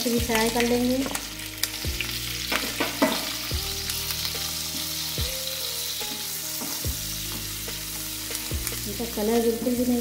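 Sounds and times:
vegetables sizzling in oil: 0.0 - 10.0.

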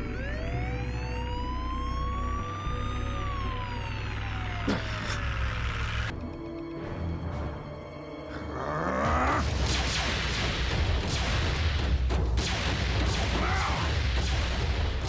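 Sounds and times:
dramatic orchestral score: 3.4 - 15.0
rumbling booms and blasts: 9.4 - 15.0.

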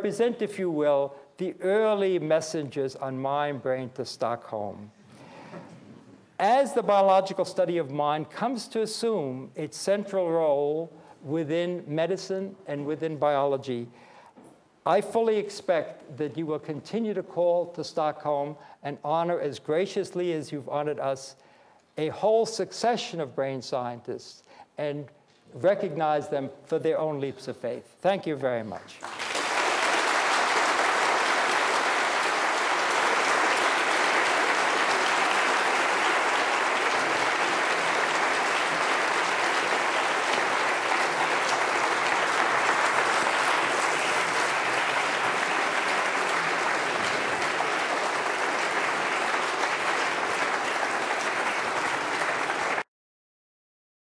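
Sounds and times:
audience applauding: 29.0 - 52.9.

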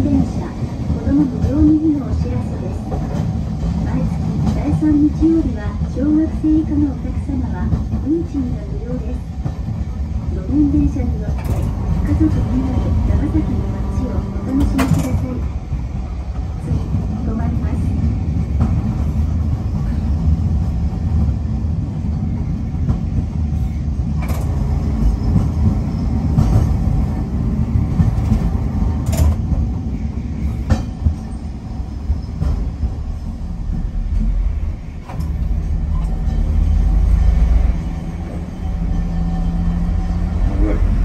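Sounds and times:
tram motors and wheels rumbling: 0.0 - 41.0.

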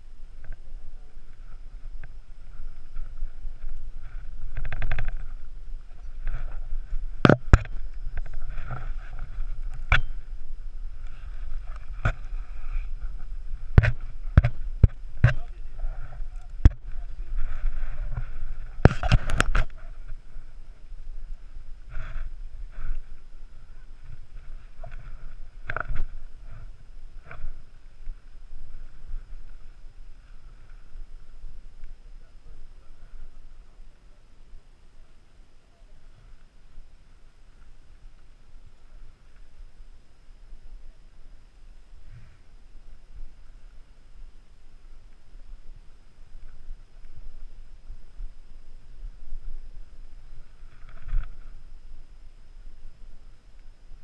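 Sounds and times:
clothing rubbing on microphone: 0.0 - 31.6, 44.8 - 52.0.

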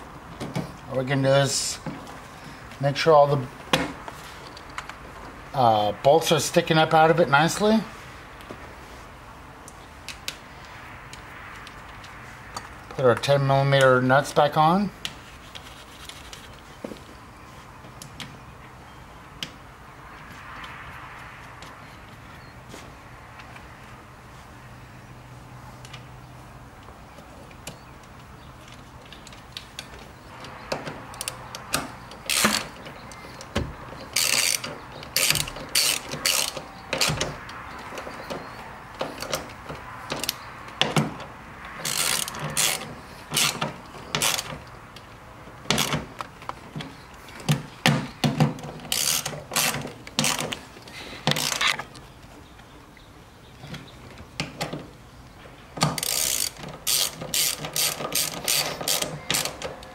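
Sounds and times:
socket ratchet clicking: 34.1 - 37.6, 55.8 - 59.7.

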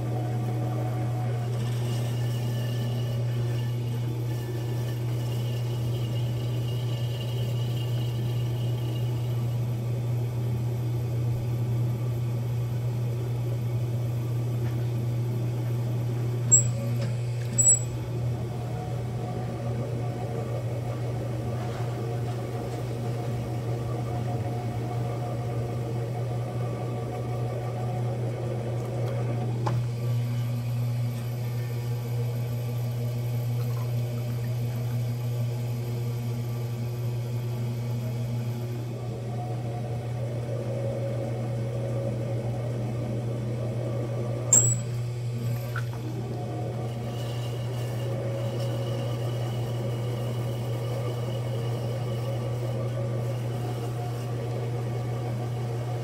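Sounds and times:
potter's wheel motor hum: 0.0 - 56.0.

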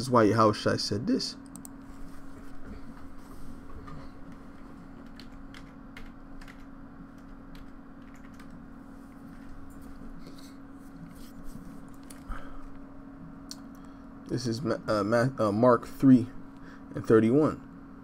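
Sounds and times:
steady low hum: 0.0 - 18.0
keyboard typing: 5.0 - 8.6.

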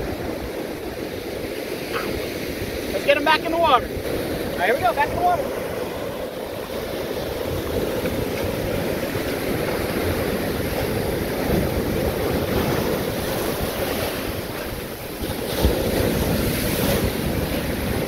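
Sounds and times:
ocean surf breaking: 0.0 - 18.0
wind buffeting microphone: 0.0 - 18.0.

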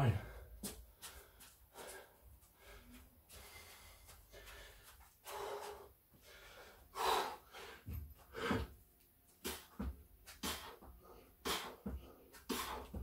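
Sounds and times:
man gasping breaths: 0.1 - 8.8, 9.4 - 13.0.

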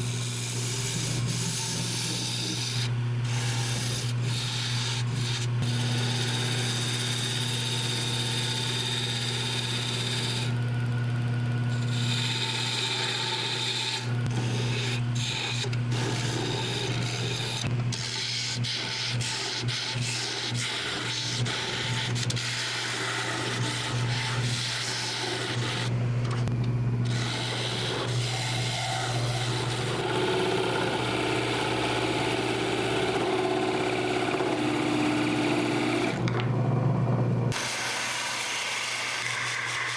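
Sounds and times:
lathe motor hum: 0.0 - 36.6, 37.5 - 39.9
turning tool scraping wood: 0.2 - 7.6, 11.7 - 31.0, 37.5 - 39.9.

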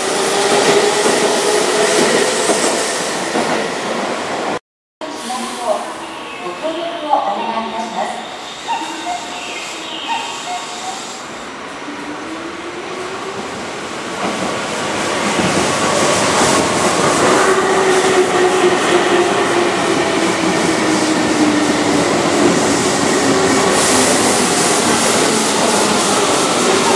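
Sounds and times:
train wheels clattering on rails: 14.2 - 26.9.

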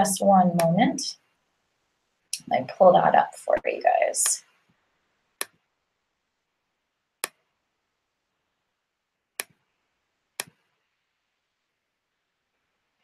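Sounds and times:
computer mouse clicks: 7.2 - 7.4, 10.4 - 10.6.

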